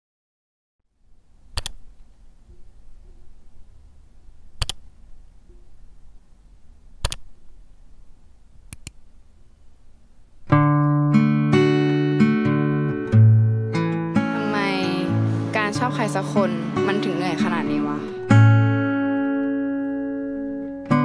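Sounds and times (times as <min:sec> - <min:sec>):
sharp clicks: 0:01.5 - 0:02.0, 0:04.6 - 0:04.9, 0:07.0 - 0:07.4, 0:08.7 - 0:09.0
guitar music with bass line: 0:10.5 - 0:21.0.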